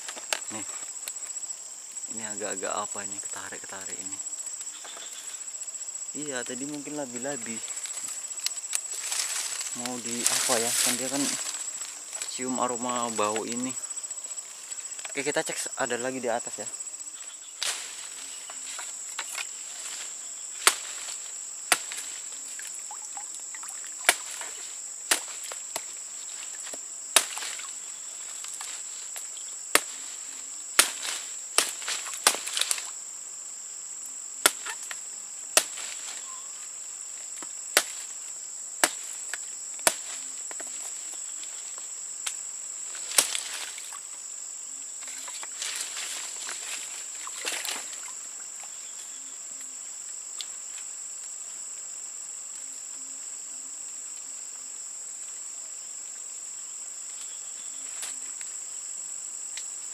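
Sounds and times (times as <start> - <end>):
insects droning: 0.0 - 59.9
sharp cracks: 20.6 - 22.2, 24.0 - 27.8, 28.4 - 30.1, 30.8 - 32.9, 34.4 - 35.0, 35.6 - 36.2, 37.7 - 38.1, 38.8 - 40.2.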